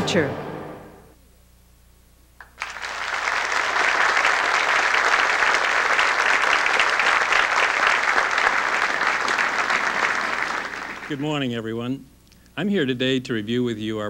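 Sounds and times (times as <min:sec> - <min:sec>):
audience applauding: 0:02.4 - 0:11.5.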